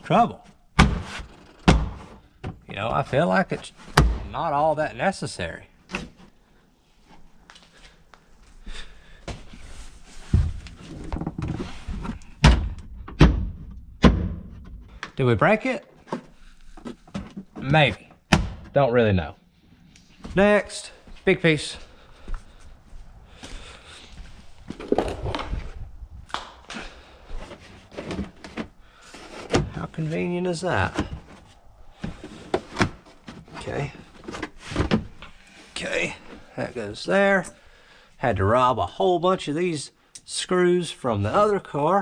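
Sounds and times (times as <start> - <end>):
plastic clattering: 24.7 - 25.7, 27.4 - 29.8
plastic panel knocking and scraping: 24.7 - 25.8.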